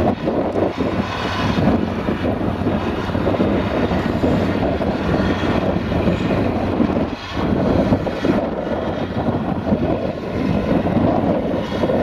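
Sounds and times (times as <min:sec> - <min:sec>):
tractor engine droning: 0:00.0 - 0:12.0.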